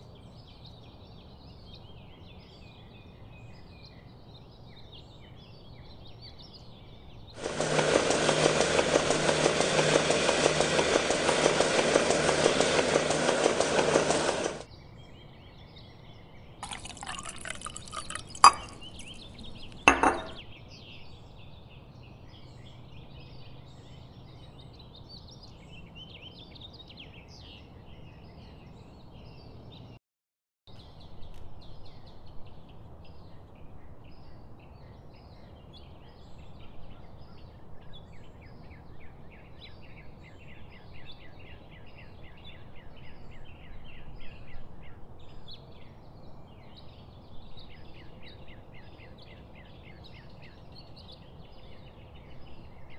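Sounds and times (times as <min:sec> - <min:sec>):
milking machine running: 0:07.4 - 0:14.7
glass clinks: 0:16.6 - 0:20.4
milk pouring into a glass: 0:16.6 - 0:20.4.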